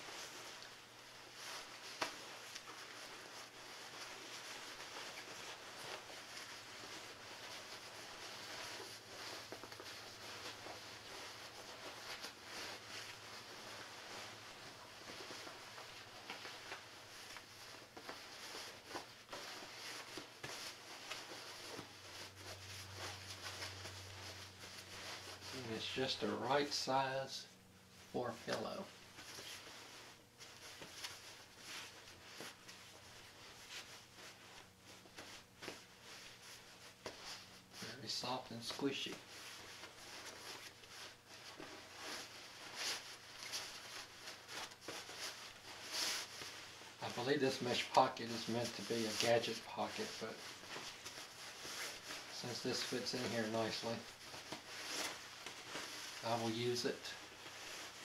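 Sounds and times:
nylon fabric rustling: 0:00.0 - 0:58.0.

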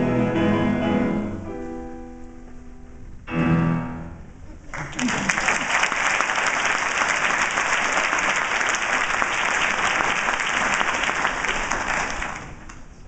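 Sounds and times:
audience applauding: 0:04.7 - 0:12.9.

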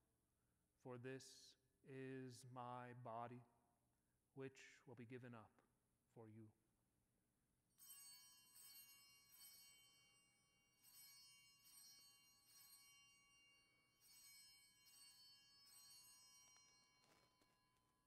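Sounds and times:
small bells ringing faintly: 0:07.8 - 0:18.0.

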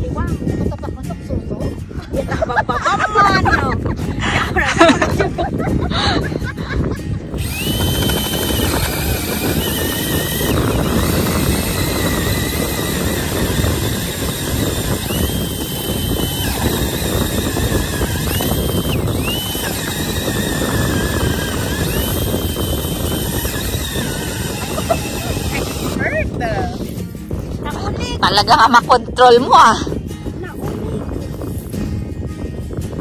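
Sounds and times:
auger blades grinding ice: 0:07.4 - 0:26.0
drill motor whine: 0:07.4 - 0:26.0.

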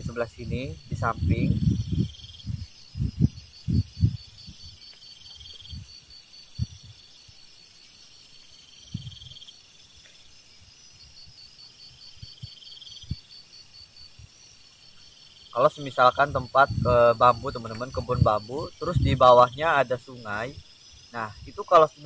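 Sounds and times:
insect buzzing trill: 0:00.0 - 0:22.0
insects chirring: 0:00.0 - 0:22.0
soft low thumps: 0:00.4 - 0:04.8.

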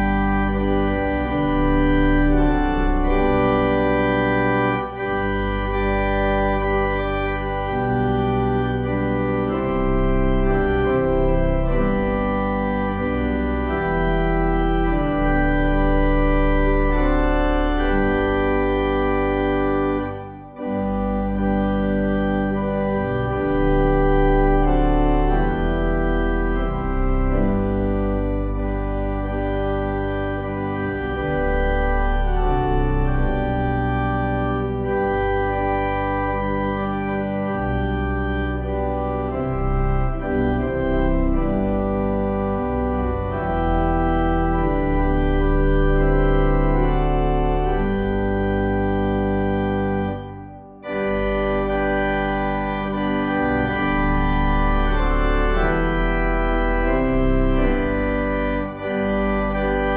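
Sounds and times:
organ playing held chords: 0:00.0 - 0:59.9.

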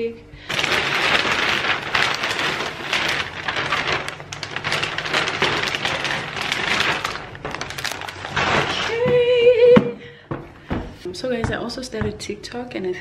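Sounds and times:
plastic bag crinkling: 0:00.4 - 0:09.2.

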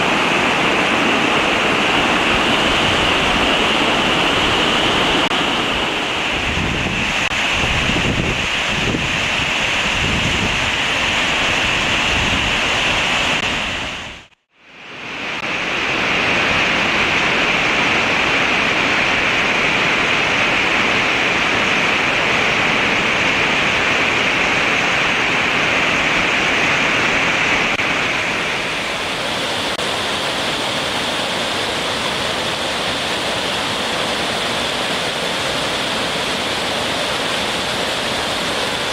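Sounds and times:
wind buffeting microphone: 0:00.0 - 0:14.3
stream rushing over boulders: 0:00.0 - 0:38.9.

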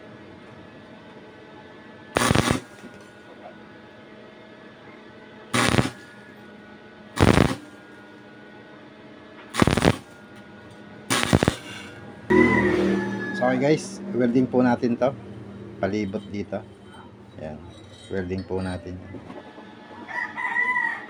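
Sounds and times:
welding arc crackling: 0:02.2 - 0:03.0, 0:05.6 - 0:06.1, 0:07.2 - 0:07.8, 0:09.5 - 0:10.2, 0:11.1 - 0:12.0.

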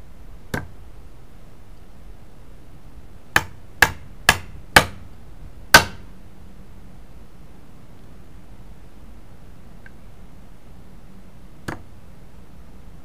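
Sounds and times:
hammer striking nail into wood: 0:03.4 - 0:05.0, 0:05.7 - 0:06.0.

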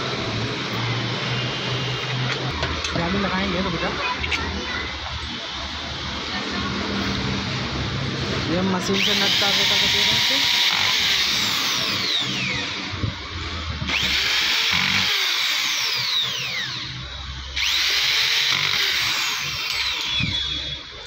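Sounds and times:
electric drill driving screws: 0:08.9 - 0:20.9.

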